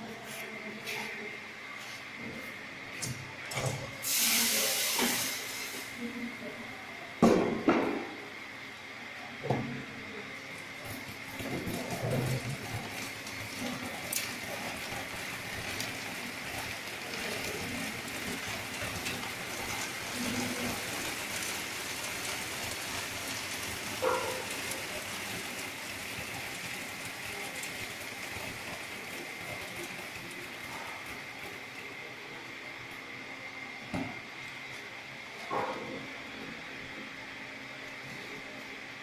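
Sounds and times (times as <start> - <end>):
sorting machine hiss: 3.6 - 6.3, 10.8 - 32.7.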